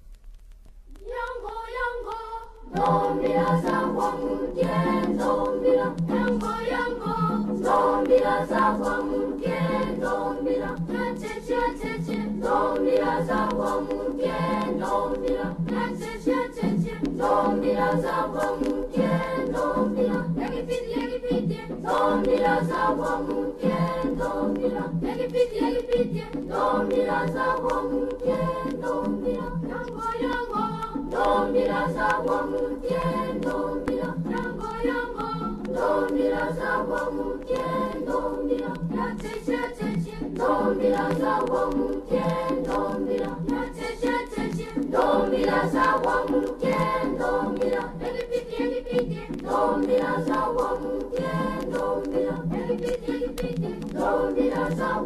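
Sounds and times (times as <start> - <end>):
choir singing: 1.0 - 55.0.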